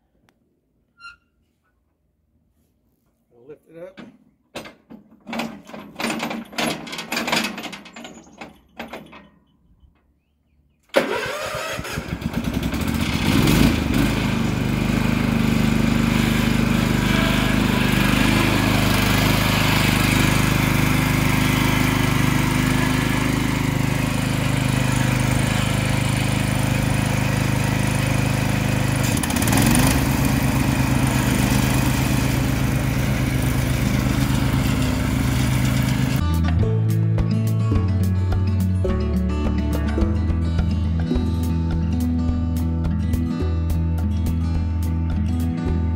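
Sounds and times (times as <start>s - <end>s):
mower engine running: 11.0s - 36.2s.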